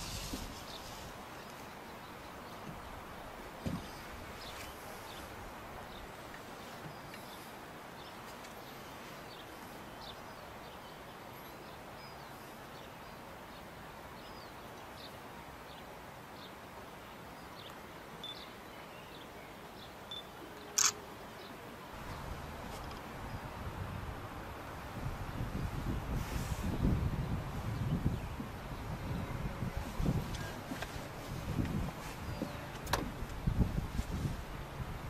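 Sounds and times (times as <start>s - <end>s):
steady background hiss: 0.0s - 35.0s
faint bird chirps: 17.4s - 21.6s.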